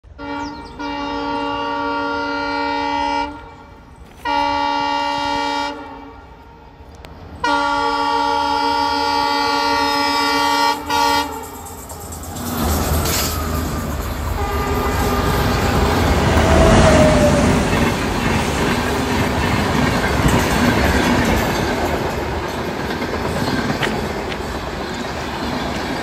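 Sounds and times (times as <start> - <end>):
train horn blasts: 0.1 - 6.8, 7.4 - 11.8, 13.1 - 17.6.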